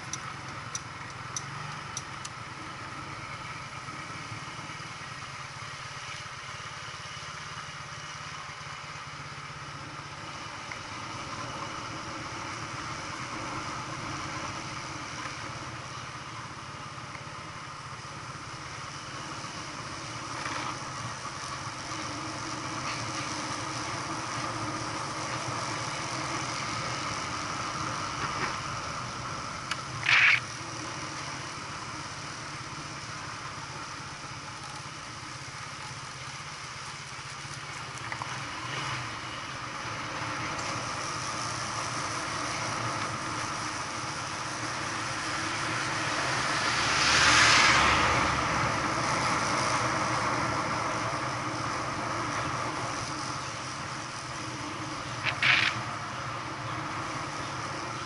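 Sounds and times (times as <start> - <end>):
vehicle engine running: 0.0 - 58.0
rush of noise: 25.0 - 31.0, 43.7 - 58.0.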